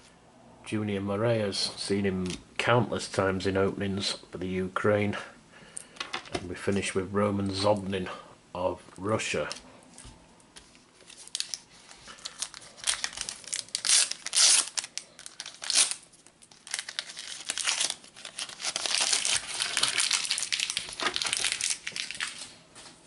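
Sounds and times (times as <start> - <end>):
foil wrapper tearing and crinkling: 11.0 - 22.5.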